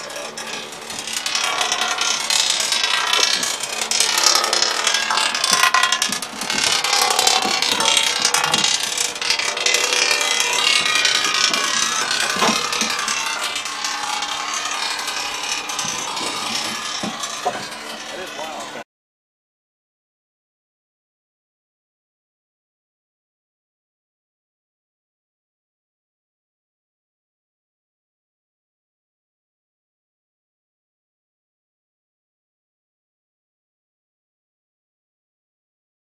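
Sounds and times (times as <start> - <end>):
engine running: 0.0 - 18.8
metallic rattling clatter: 0.0 - 18.8.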